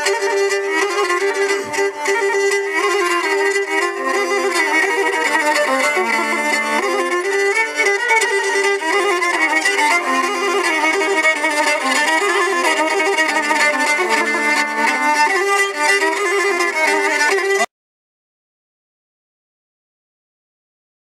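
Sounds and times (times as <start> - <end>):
folk dance music with bowed fiddle: 0.0 - 17.7.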